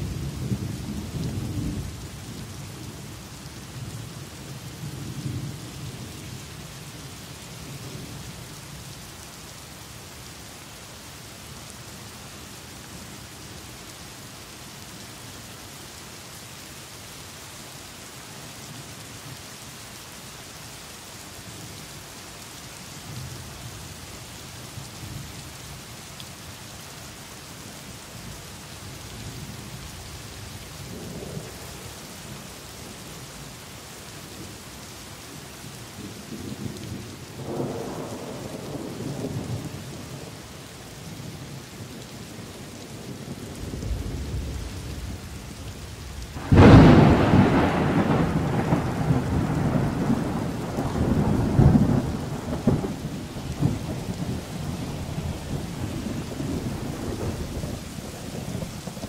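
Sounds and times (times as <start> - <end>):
steady rain: 0.0 - 59.0
distant thunder rumbling: 37.4 - 40.3, 46.1 - 59.0
loud thunderclap: 46.4 - 59.0.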